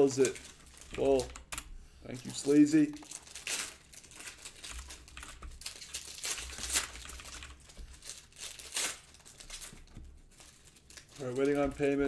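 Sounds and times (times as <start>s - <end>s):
plastic wrapping crinkling: 0.0s - 1.4s, 2.1s - 12.0s.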